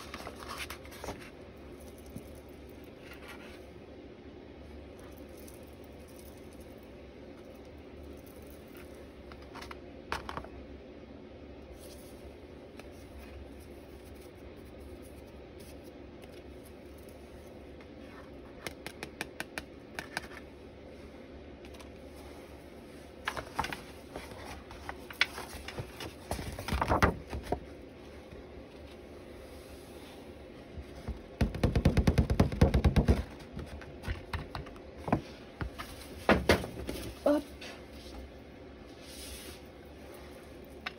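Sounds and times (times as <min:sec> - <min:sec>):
rustling and knocks: 0:30.8 - 0:38.2.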